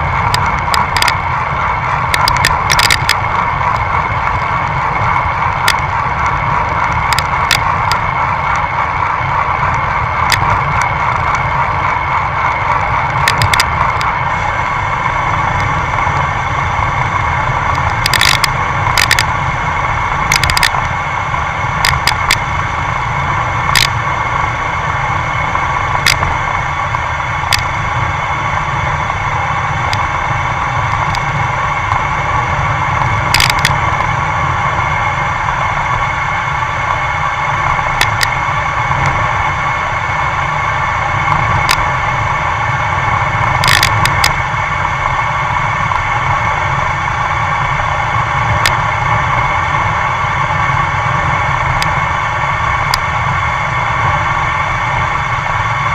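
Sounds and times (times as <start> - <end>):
road rumble: 0.0 - 55.9
wind noise: 0.0 - 55.9
short sharp clicks and rattles: 17.7 - 19.3.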